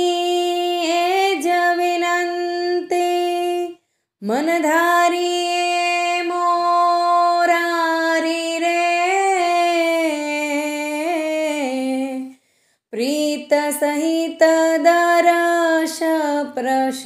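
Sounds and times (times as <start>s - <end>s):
woman singing unaccompanied hymn: 0.0s - 12.3s.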